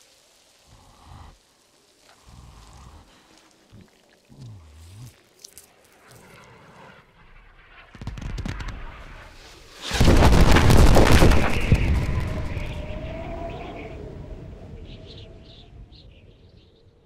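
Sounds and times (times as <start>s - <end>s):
loud crackling blast: 7.2s - 13.2s
rumbling explosion burst: 7.4s - 13.3s.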